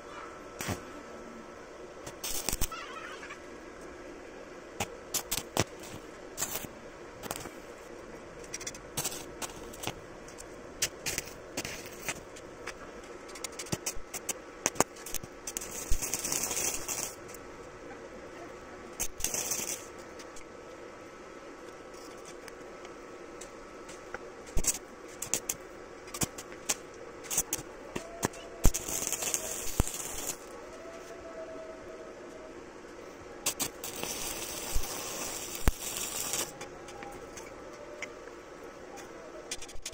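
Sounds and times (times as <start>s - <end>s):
electrode crackles and clicks: 2.0s - 2.8s, 4.8s - 7.6s, 8.4s - 17.8s, 18.9s - 20.8s, 21.6s - 30.5s, 33.4s - 36.7s
welding arc sputtering and hissing: 2.0s - 3.4s, 4.8s - 17.6s, 18.9s - 20.6s, 21.7s - 30.6s, 33.4s - 38.1s, 39.0s - 39.9s.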